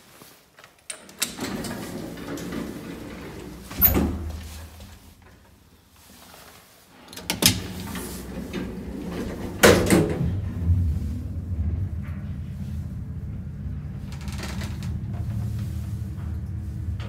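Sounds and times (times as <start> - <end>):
elevator mechanical clunks: 1.1 - 5.0, 7.1 - 17.0
low hum: 7.9 - 17.0.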